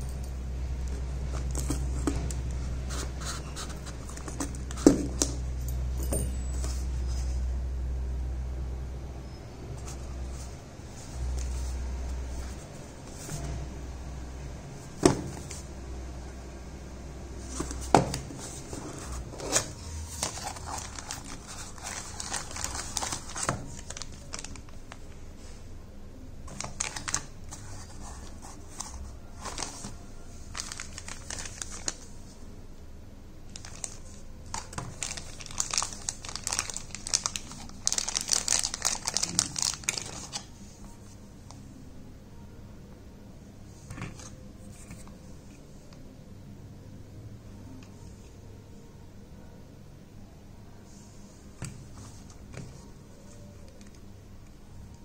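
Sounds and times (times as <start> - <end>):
plastic packaging crinkling: 17.5 - 25.2, 26.5 - 32.1, 33.5 - 40.5.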